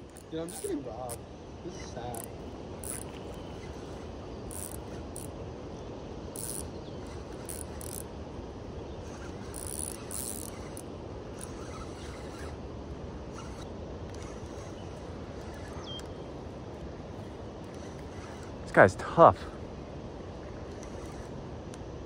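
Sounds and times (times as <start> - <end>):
fishing reel ratcheting clicks: 0.0 - 1.2, 1.9 - 5.3, 6.3 - 8.1, 9.1 - 10.8, 11.4 - 12.5, 17.6 - 18.6.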